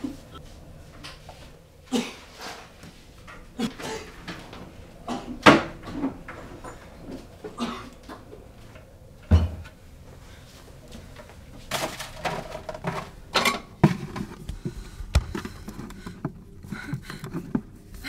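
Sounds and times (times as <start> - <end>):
things clattering in cabinets: 1.9 - 8.5, 9.2 - 9.8, 11.2 - 18.0
cupboard doors opening and shutting: 3.8 - 7.2, 9.3 - 9.8, 11.7 - 16.1.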